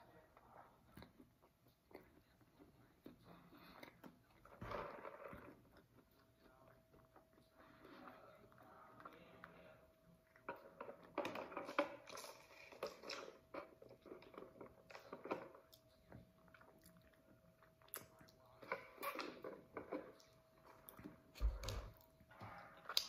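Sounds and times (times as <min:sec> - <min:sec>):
person chewing: 0:12.0 - 0:23.0.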